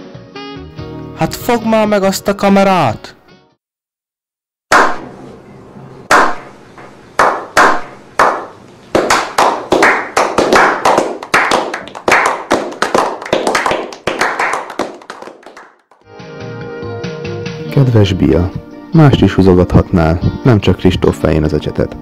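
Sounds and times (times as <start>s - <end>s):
men clapping: 4.7s - 5.0s, 7.2s - 16.0s.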